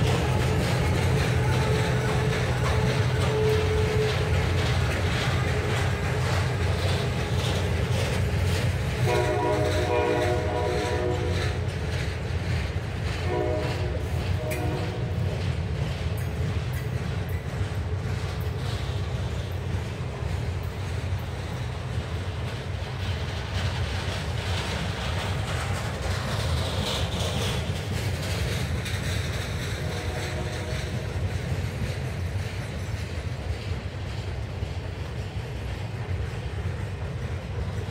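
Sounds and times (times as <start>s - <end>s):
train wheels rumbling: 0.0s - 37.9s
wheels clacking over rail joints: 0.0s - 37.9s
train horn chord: 9.0s - 11.6s, 13.2s - 15.2s, 29.8s - 31.0s.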